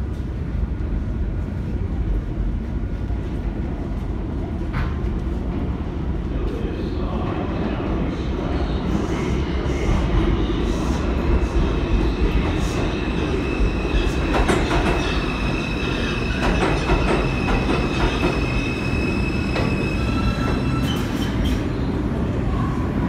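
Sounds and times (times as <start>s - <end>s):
subway train rumble: 0.0s - 23.0s.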